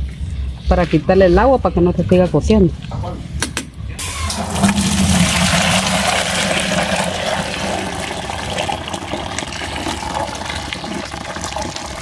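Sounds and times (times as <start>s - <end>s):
hot water pouring into bucket: 4.0s - 12.0s.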